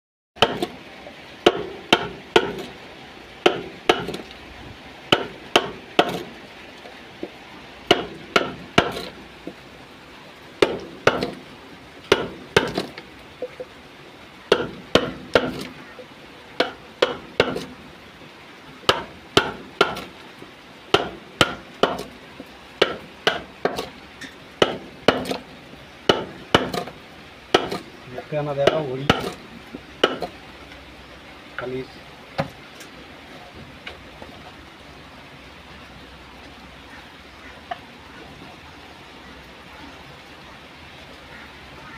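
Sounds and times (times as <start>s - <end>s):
chisel knocking into wood: 27.6s - 27.8s.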